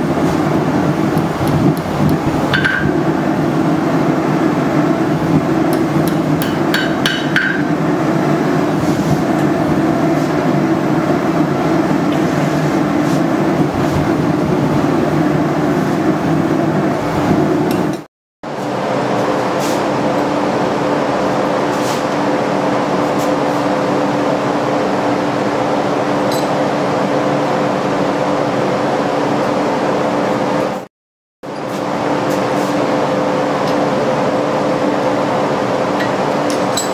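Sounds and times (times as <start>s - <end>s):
loud steady roar: 0.0s - 36.9s.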